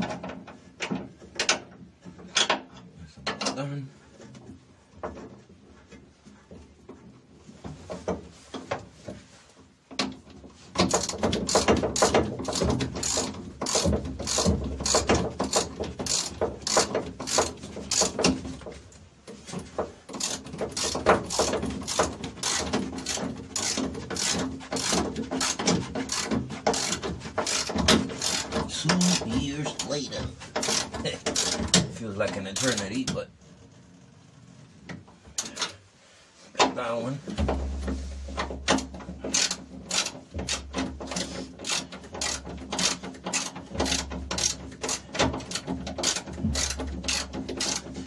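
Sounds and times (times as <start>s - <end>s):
ratchet wrench clicking: 10.9s - 18.2s, 20.2s - 28.5s, 39.3s - 47.8s.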